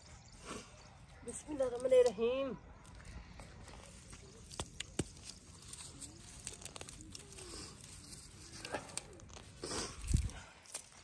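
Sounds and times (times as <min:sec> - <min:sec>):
leaves rustling: 0:03.3 - 0:11.0
stems snapping: 0:03.7 - 0:11.0.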